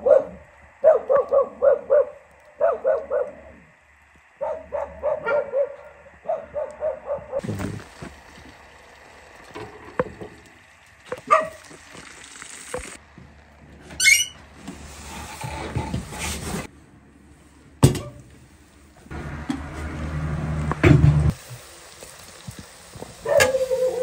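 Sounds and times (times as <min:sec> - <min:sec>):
wavering squeak: 0:14.0 - 0:14.4.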